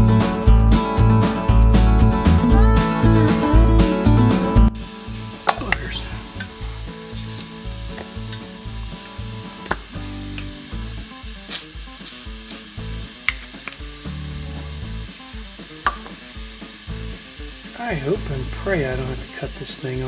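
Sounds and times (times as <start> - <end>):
background music: 0.0 - 20.0
oil sizzling on hot metal: 4.7 - 20.0.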